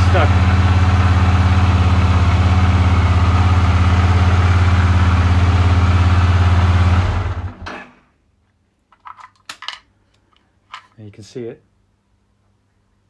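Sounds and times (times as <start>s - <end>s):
motorcycle engine running: 0.0s - 7.6s.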